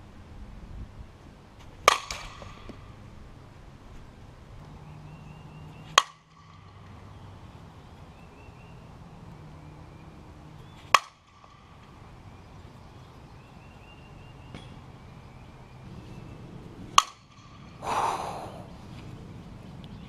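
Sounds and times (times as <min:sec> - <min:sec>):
bat hitting ball: 0:01.7 - 0:03.0, 0:05.1 - 0:07.3, 0:10.6 - 0:12.1, 0:16.8 - 0:17.8.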